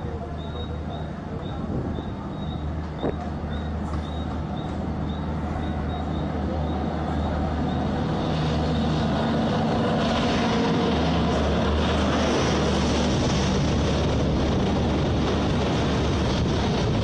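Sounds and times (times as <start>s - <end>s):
electric locomotive whine and hum: 0.0s - 17.0s
wheels rushing on rails: 0.0s - 17.0s.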